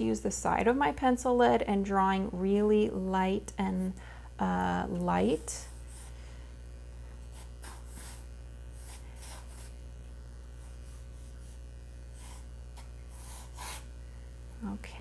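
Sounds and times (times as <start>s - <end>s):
low electrical hum: 0.0s - 15.0s
pencil sketching on paper: 5.3s - 6.2s, 7.2s - 9.9s, 10.5s - 13.9s.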